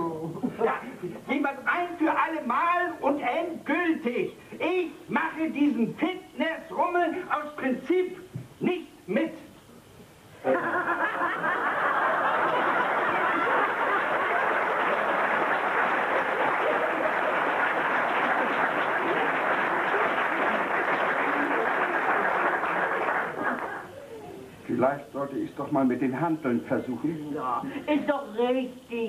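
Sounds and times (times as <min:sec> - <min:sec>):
audience laughing: 0:10.4 - 0:24.0.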